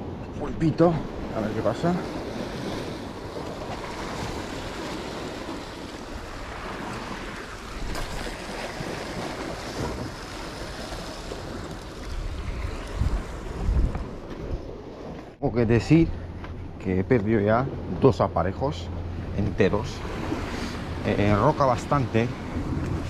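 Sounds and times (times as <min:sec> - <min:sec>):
surf washing against rocks: 0:00.4 - 0:15.4, 0:19.4 - 0:23.0
wind on microphone: 0:02.0 - 0:15.4, 0:19.2 - 0:23.0.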